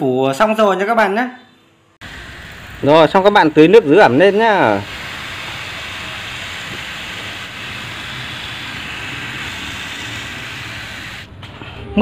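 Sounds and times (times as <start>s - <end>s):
hose spraying water on soil: 2.0s - 11.3s.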